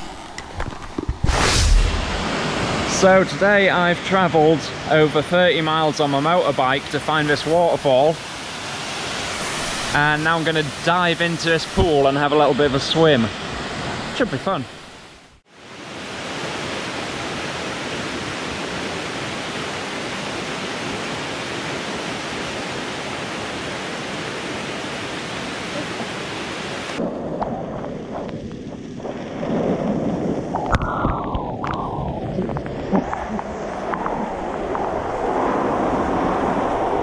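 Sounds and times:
falling water splashing: 1.2 - 3.8
waterfall rushing into pool: 1.2 - 27.0.

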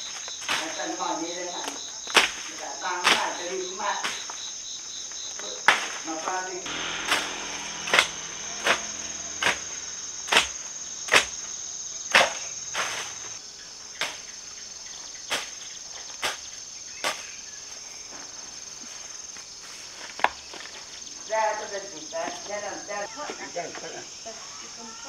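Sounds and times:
insects chirring: 0.0 - 25.0
sharp knocks: 6.7 - 13.0.

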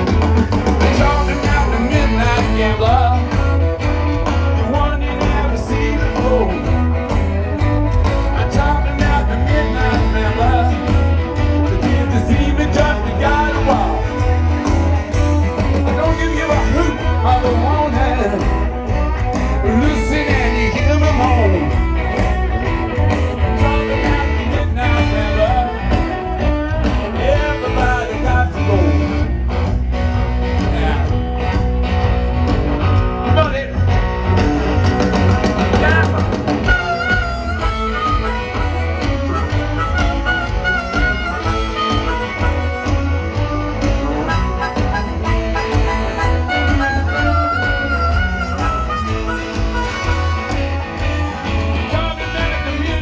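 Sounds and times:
live rock band playing: 0.0 - 53.0
person singing: 0.7 - 7.1, 8.0 - 14.3, 19.5 - 21.9, 49.3 - 53.0.

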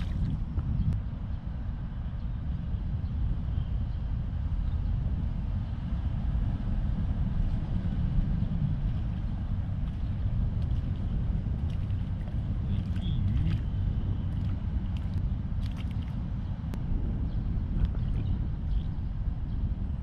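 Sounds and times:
fish splashing in water: 0.0 - 0.4, 10.6 - 16.2
traffic rumble on bridge: 0.0 - 20.0.

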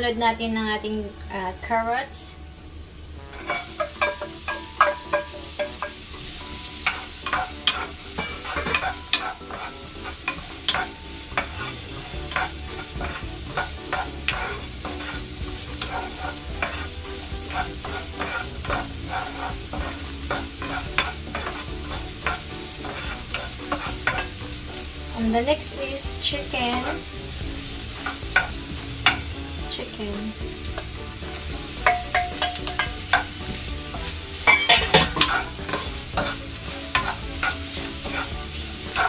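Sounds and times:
vegetables sizzling in a frying pan: 0.2 - 39.0
wooden spoon scraping a pan: 3.4 - 6.0, 6.6 - 39.0.

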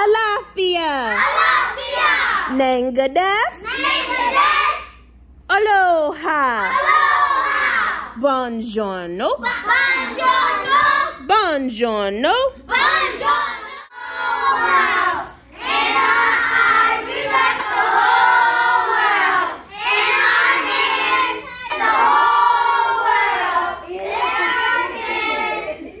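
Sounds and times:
children singing: 12.7 - 26.0.

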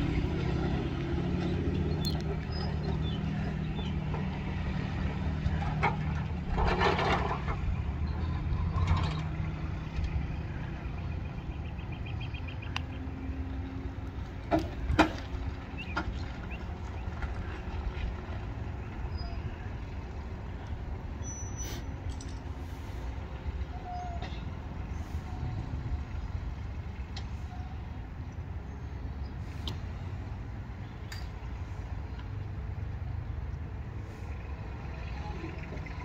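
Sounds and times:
vehicle engine rumble: 0.0 - 36.0.

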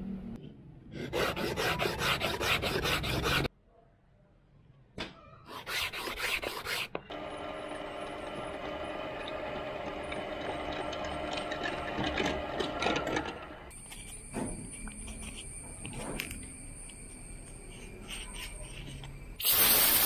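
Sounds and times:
drill press motor hum: 7.1 - 13.7.

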